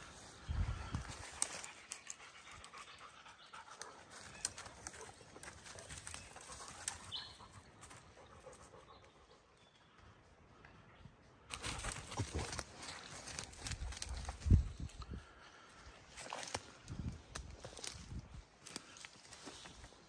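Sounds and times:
dry leaves crackling underfoot: 0:00.0 - 0:02.8, 0:03.7 - 0:08.0, 0:11.5 - 0:20.0.

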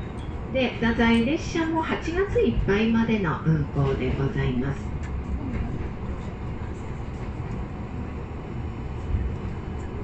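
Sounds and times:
railcar engine and wheels rumbling: 0:00.0 - 0:10.0.

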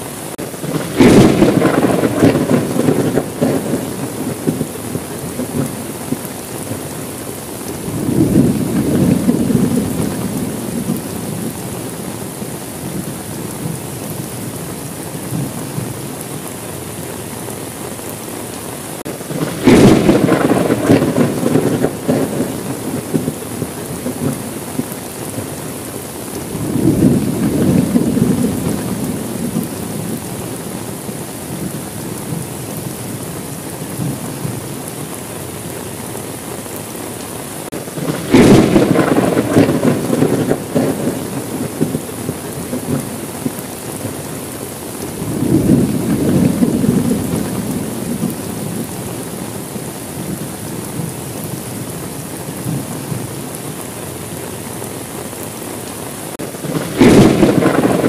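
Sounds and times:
thunder rumbling: 0:00.0 - 0:18.1, 0:19.0 - 0:36.8, 0:37.6 - 0:54.7, 0:56.3 - 0:58.0
heavy rain: 0:00.0 - 0:58.0
sharp thunder crack: 0:00.4 - 0:05.9, 0:07.8 - 0:11.6, 0:19.1 - 0:25.5, 0:38.0 - 0:43.6, 0:56.6 - 0:58.0.

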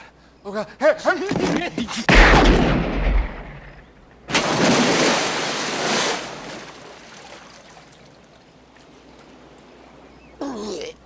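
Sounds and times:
water noise: 0:02.8 - 0:10.4
heavy splash into water: 0:04.3 - 0:07.8.

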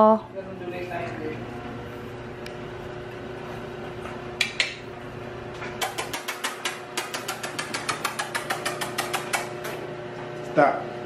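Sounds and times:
puppy claws clicking on tile: 0:04.4 - 0:04.8, 0:05.8 - 0:09.8.

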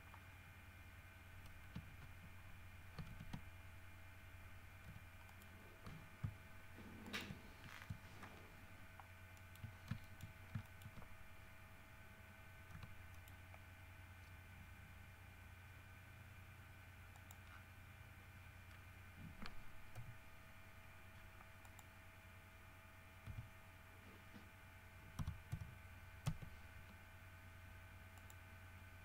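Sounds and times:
low electrical hum: 0:00.0 - 0:29.0
computer keyboard and mouse clicks: 0:01.4 - 0:02.1, 0:03.0 - 0:03.4, 0:09.4 - 0:11.1, 0:12.7 - 0:13.6, 0:17.1 - 0:17.6, 0:23.2 - 0:23.5, 0:25.2 - 0:26.5.

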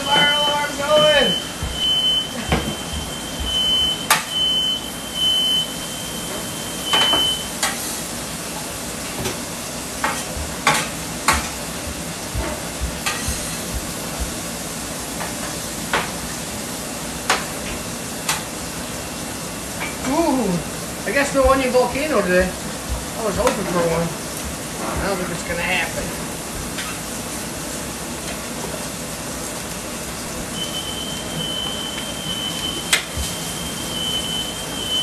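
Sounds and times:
smoke alarm tone: 0:00.0 - 0:07.5, 0:30.6 - 0:35.0
food sizzling on a griddle: 0:00.0 - 0:35.0
metal spatula tapping griddle: 0:10.0 - 0:11.6, 0:12.4 - 0:13.4.

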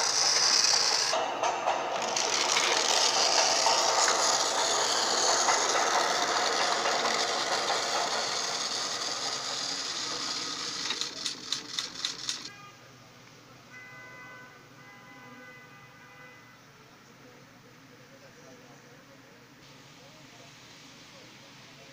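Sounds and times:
toy train motor whirring: 0:00.0 - 0:12.5
sharp clicks: 0:10.8 - 0:12.5.

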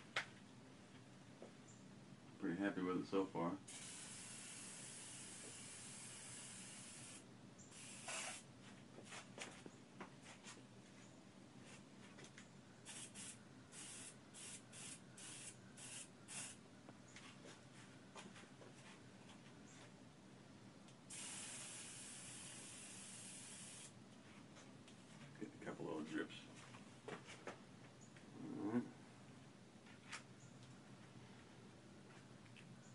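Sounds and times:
aerosol spray hissing: 0:03.7 - 0:08.5, 0:12.9 - 0:16.6, 0:21.1 - 0:24.0.

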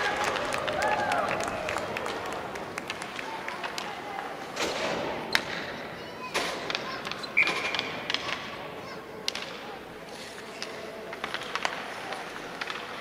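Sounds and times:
hockey sticks clacking on ice: 0:02.1 - 0:13.0
skates scraping on ice: 0:10.0 - 0:13.0.

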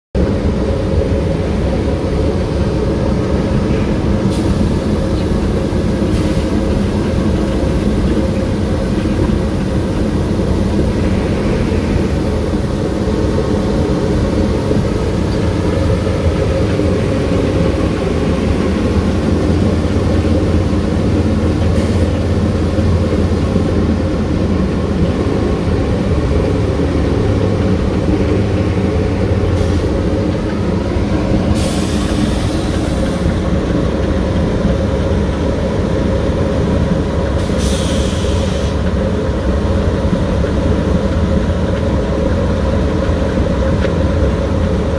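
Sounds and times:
loud low machinery drone: 0:00.2 - 0:44.9.

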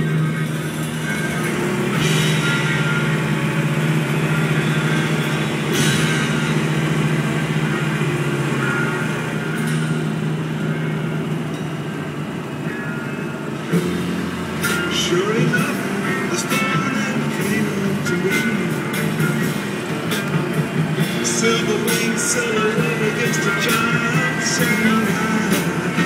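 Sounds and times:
music through car speakers: 0:00.0 - 0:26.0
cymbal crash: 0:00.4 - 0:12.2.

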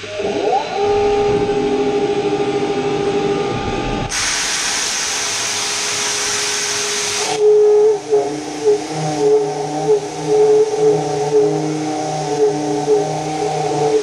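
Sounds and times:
milling machine whine: 0:00.0 - 0:14.0
loud even hiss: 0:03.6 - 0:14.0.

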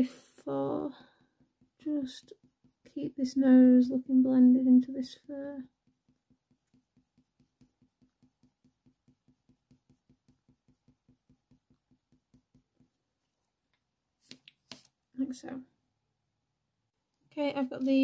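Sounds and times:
coloured pencil strokes on paper: 0:00.0 - 0:13.4.

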